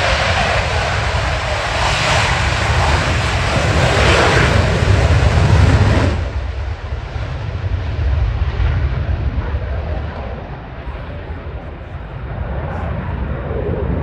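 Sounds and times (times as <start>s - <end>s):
jet engine roaring at takeoff: 0.0s - 14.0s.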